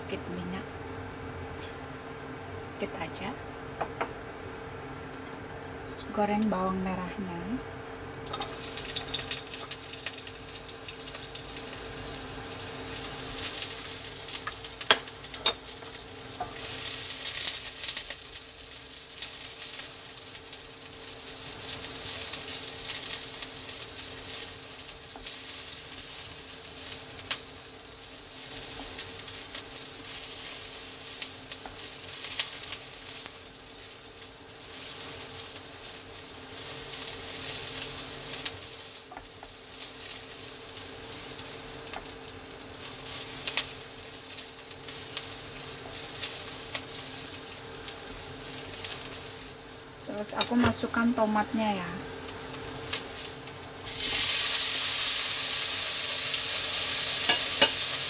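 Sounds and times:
steady low hum: 0:00.0 - 0:54.0
shallots sizzling in oil: 0:08.2 - 0:58.0.

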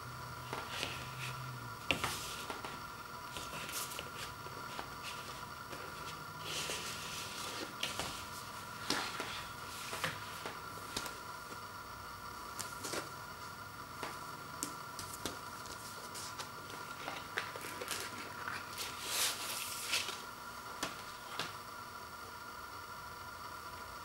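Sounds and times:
paper sliding against card: 0:00.5 - 0:11.2, 0:15.7 - 0:20.2.

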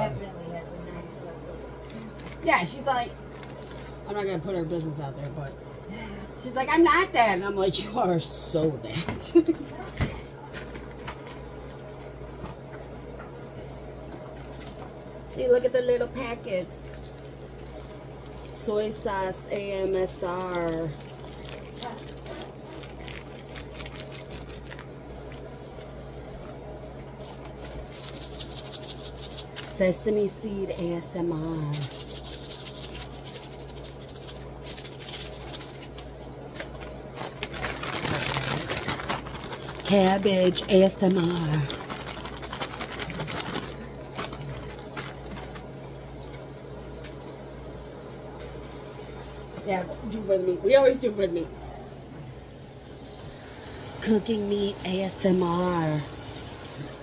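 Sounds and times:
plastic packets crinkling: 0:03.2 - 0:04.1, 0:10.2 - 0:12.2, 0:19.9 - 0:26.0, 0:27.2 - 0:29.8, 0:31.8 - 0:46.8.

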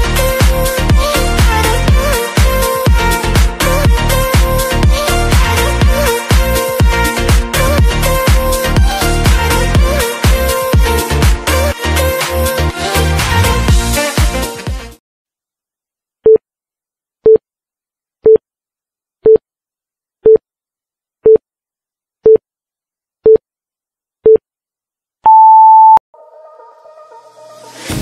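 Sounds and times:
music: 0:00.0 - 0:15.0, 0:26.2 - 0:28.0
longer higher beep: 0:25.3 - 0:26.0.

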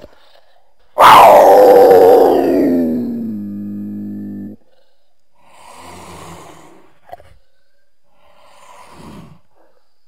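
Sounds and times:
cougar call: 0:01.0 - 0:04.6.

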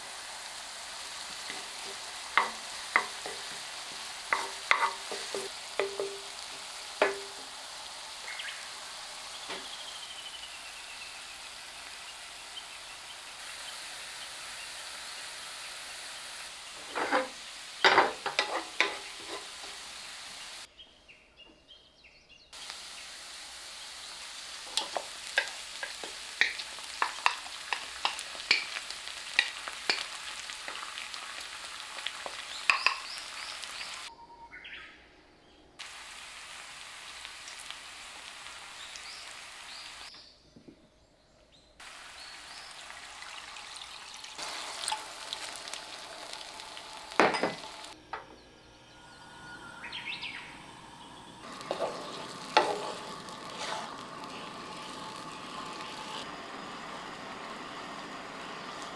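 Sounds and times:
sauce sizzling in frying pan: 0:00.0 - 0:20.7, 0:22.6 - 0:34.1, 0:35.8 - 0:40.1, 0:41.8 - 0:48.0, 0:48.8 - 0:58.9
spatula knocking on pan: 0:04.3 - 0:06.3, 0:07.0 - 0:07.5
wooden spatula stirring: 0:51.6 - 0:54.0.

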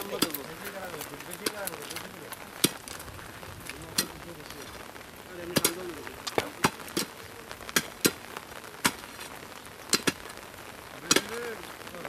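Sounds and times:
person speaking: 0:00.0 - 0:07.5.

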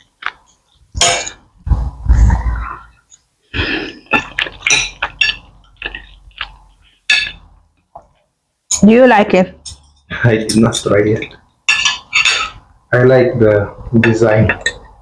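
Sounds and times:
cutlery clinking on plates: 0:01.0 - 0:01.5, 0:04.0 - 0:07.5, 0:09.6 - 0:12.6, 0:14.0 - 0:15.0.

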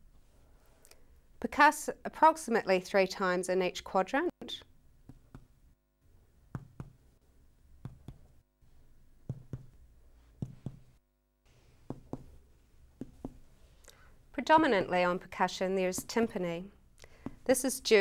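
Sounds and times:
finger tapping on belly: 0:06.5 - 0:07.0, 0:07.8 - 0:08.3, 0:09.3 - 0:09.8, 0:10.4 - 0:10.9, 0:11.9 - 0:12.3.

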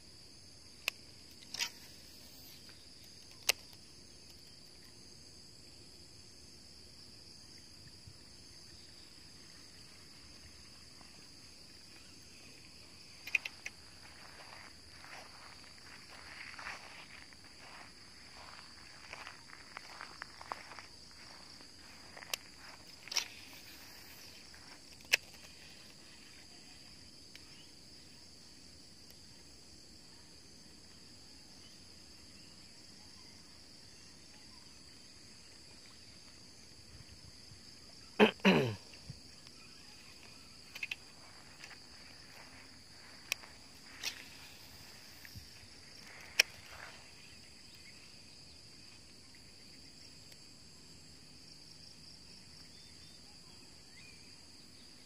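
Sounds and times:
insects droning: 0:00.0 - 0:55.0
sharp clicks: 0:03.0 - 0:04.4, 0:13.2 - 0:13.8.

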